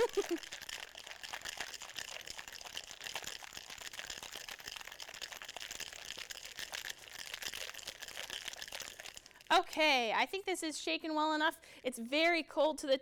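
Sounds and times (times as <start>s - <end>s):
ice cubes rattling in shaker: 0.0s - 10.4s.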